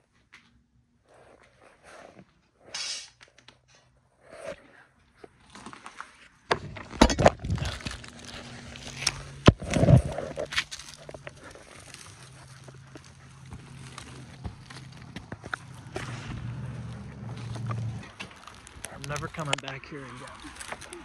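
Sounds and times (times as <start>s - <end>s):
footsteps on rubble: 5.3s - 21.0s
debris thuds and crunches: 5.4s - 21.0s.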